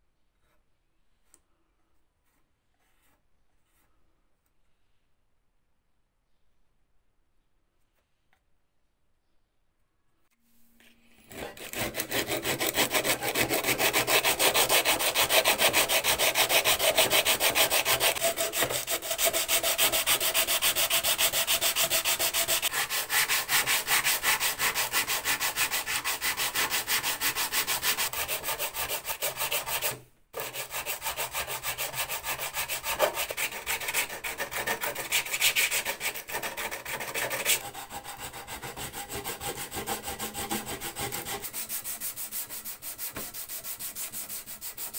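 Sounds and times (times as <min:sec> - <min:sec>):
sandpaper scratching on metal: 0:11.3 - 0:44.9.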